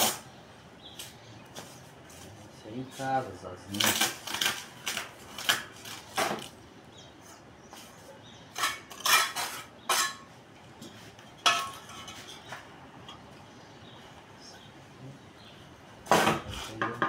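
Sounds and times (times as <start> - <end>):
trowel scraping mortar: 8.5 - 10.3.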